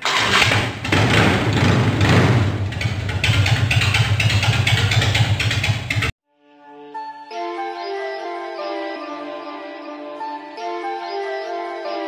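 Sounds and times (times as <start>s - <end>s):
motorcycle engine idling: 0.0s - 6.1s.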